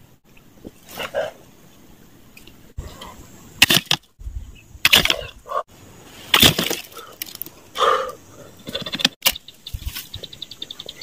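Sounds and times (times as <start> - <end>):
bamboo sticks set into mud: 6.2 - 7.6.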